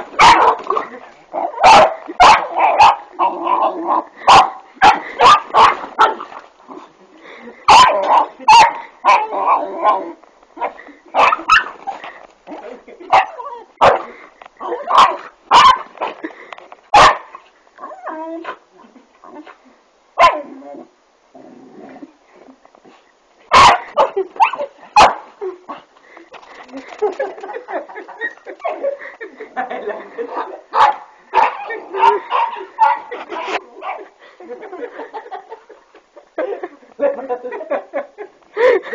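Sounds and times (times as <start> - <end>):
dog barking: 0.2 - 0.6, 1.6 - 3.1, 4.3 - 6.2, 7.7 - 11.7, 13.1 - 14.1, 14.8 - 15.9, 16.9 - 17.3, 20.2 - 20.5, 23.5 - 25.3, 30.7 - 33.1
dog yelping: 0.2 - 0.7.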